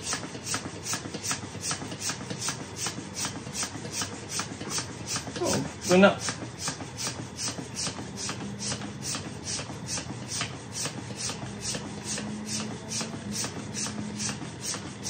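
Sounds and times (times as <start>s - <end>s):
hand pump strokes: 0.0s - 15.0s.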